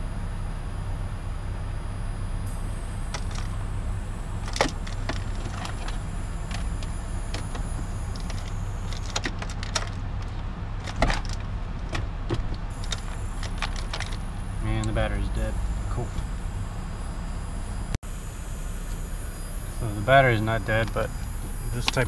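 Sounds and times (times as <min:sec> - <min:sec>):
steady low hum: 0:00.0 - 0:22.0
sharp clicks and knocks: 0:04.4 - 0:14.2.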